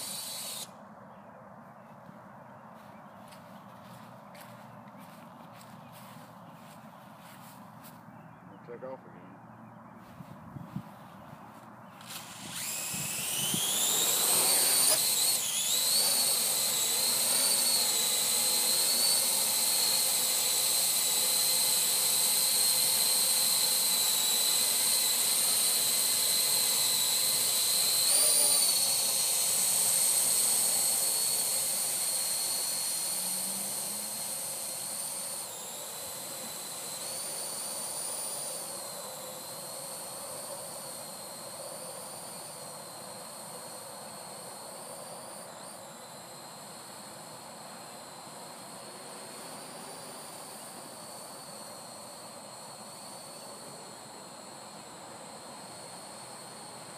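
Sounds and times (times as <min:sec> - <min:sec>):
quadcopter propellers whining: 0:00.0 - 0:00.8, 0:10.0 - 0:56.9.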